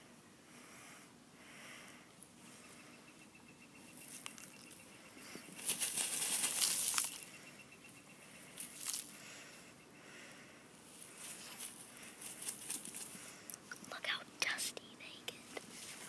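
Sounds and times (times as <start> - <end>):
hen flapping feathers in dirt: 5.5 - 7.3, 11.3 - 13.2.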